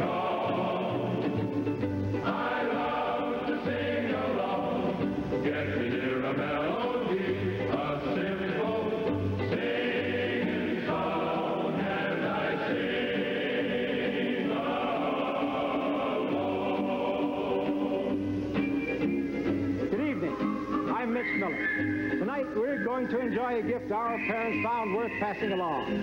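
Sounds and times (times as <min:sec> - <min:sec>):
male chorus singing: 0:00.0 - 0:18.3
instrumental accompaniment: 0:00.0 - 0:26.0.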